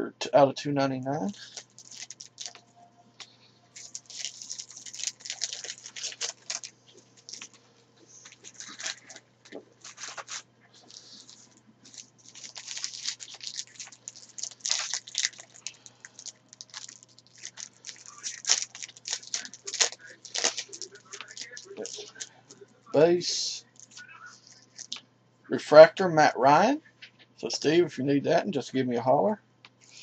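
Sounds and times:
cards and foil wrappers crinkling: 1.2s - 2.6s, 3.7s - 25.0s.

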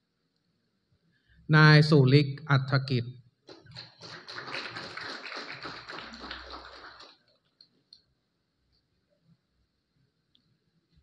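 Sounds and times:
audience clapping: 3.5s - 7.7s.

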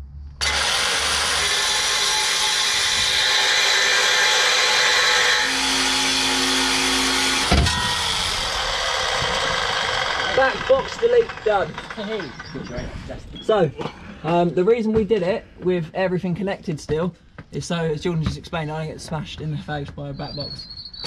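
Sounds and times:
reciprocating saw cutting metal pipe: 0.4s - 12.7s.

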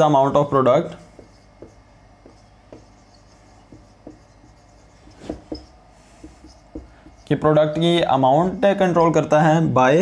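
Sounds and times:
marker writing on whiteboard: 0.9s - 7.8s.

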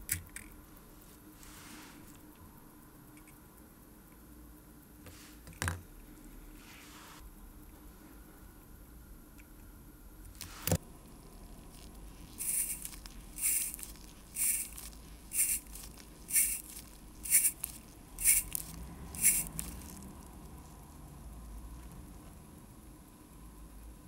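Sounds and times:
rubber air blower puffs: 12.3s - 20.0s.

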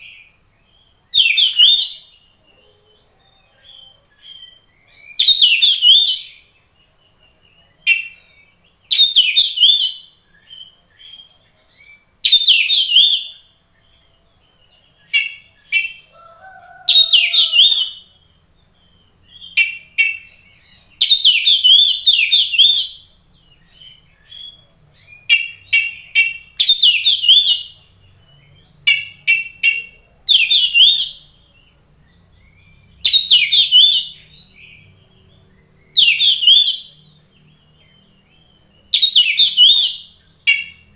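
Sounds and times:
bird singing whistled phrases: 3.0s - 6.4s, 15.1s - 18.1s, 23.8s - 27.8s, 28.9s - 31.3s, 32.2s - 34.7s, 35.8s - 37.0s, 38.4s - 40.8s.

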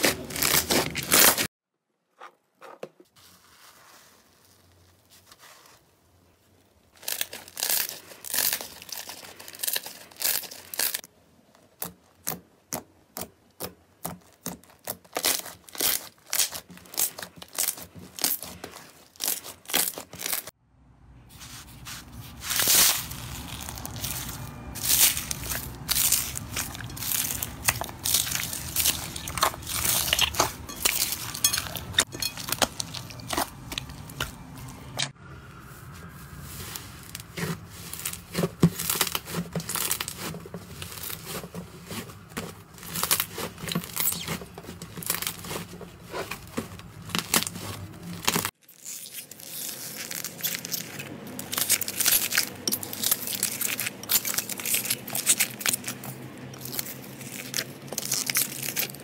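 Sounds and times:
crackling slime squeezed by hand: 14.0s - 20.5s, 22.4s - 35.0s, 36.6s - 59.0s.

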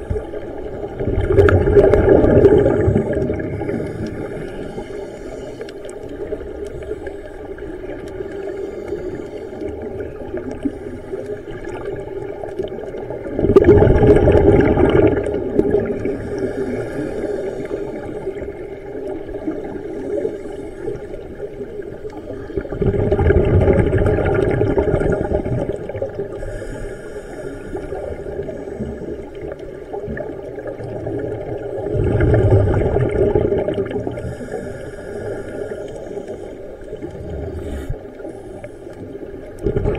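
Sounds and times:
regulator bubble bursts underwater: 0.0s - 4.8s, 9.6s - 16.8s, 20.9s - 26.4s, 27.8s - 34.5s, 36.8s - 38.6s, 39.2s - 39.9s.

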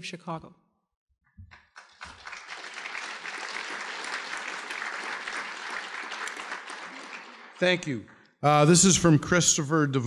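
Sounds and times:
large audience applauding: 1.5s - 8.7s.

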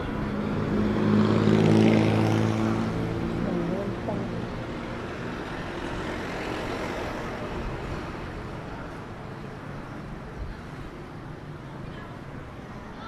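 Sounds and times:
motor vehicle passing: 0.0s - 8.3s
street traffic noise: 0.0s - 13.0s.

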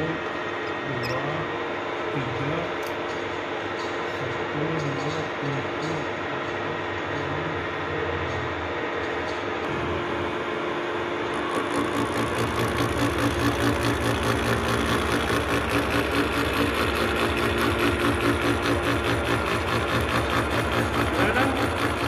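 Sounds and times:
milling machine humming: 0.0s - 22.0s
cutter pulsing on metal: 9.7s - 22.0s.

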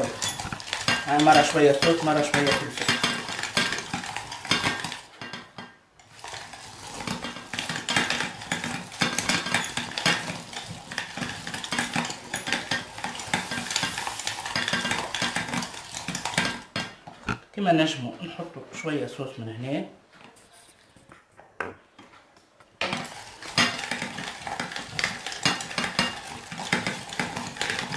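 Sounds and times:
food mill blade scraping metal: 0.0s - 5.0s, 6.0s - 16.7s, 22.8s - 27.9s.

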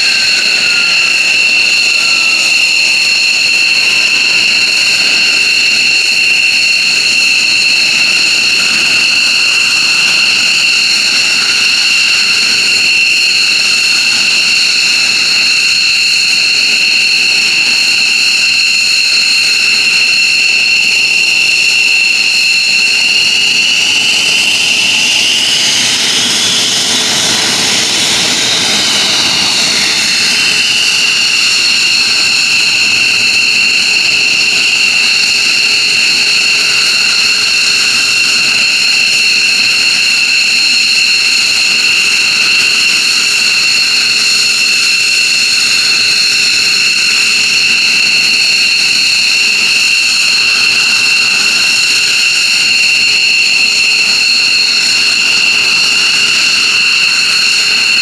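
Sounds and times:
jet rush: 0.0s - 15.8s, 19.5s - 40.3s
jet engines whining: 0.0s - 58.0s.

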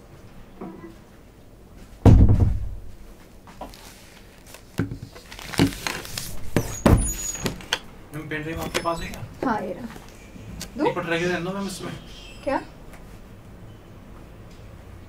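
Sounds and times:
deep thump: 2.0s - 3.0s
sharp knocks: 2.1s - 2.8s
rustling: 2.9s - 7.7s.

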